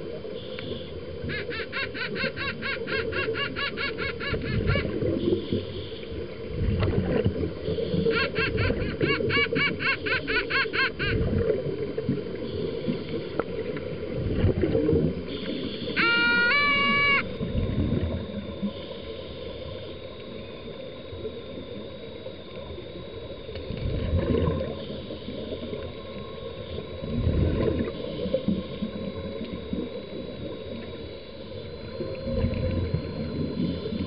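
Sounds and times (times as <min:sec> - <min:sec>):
faint high whine: 0:00.0 - 0:02.0, 0:02.6 - 0:34.0
low underwater rumble: 0:04.4 - 0:08.1, 0:11.1 - 0:16.0, 0:16.7 - 0:34.0
regulator exhaust bubbles gurgling: 0:04.4 - 0:09.0, 0:11.0 - 0:15.8, 0:17.2 - 0:19.0, 0:19.7 - 0:34.0.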